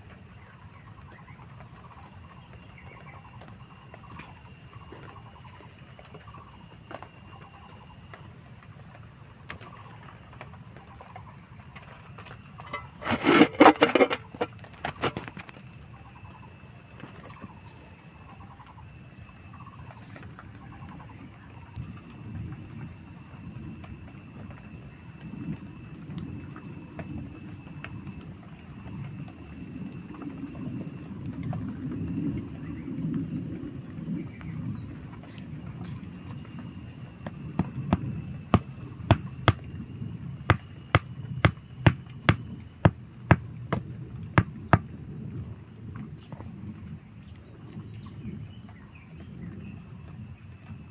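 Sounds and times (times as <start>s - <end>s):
hatchet knocking wooden stake: 37.6s - 39.7s, 40.5s - 44.5s.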